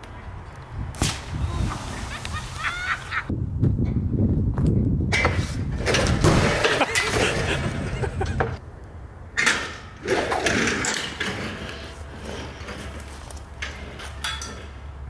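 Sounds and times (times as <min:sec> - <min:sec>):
trebuchet frame clatter: 0:09.4 - 0:15.0.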